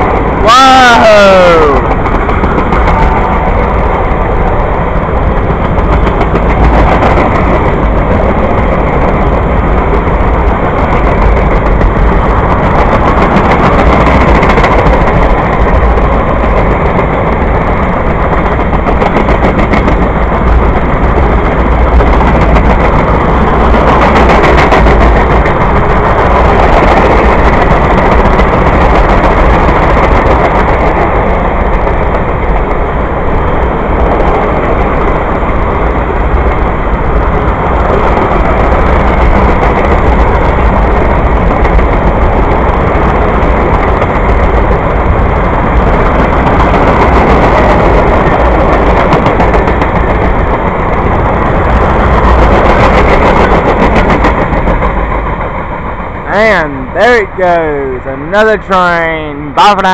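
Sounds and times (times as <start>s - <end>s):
freight train wheels rumbling: 0.0s - 59.9s
rapid clattering clicks: 1.7s - 59.3s.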